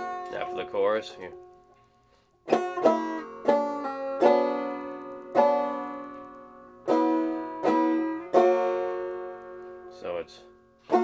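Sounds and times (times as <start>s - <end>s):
banjo single notes plucked: 0.0s - 11.0s.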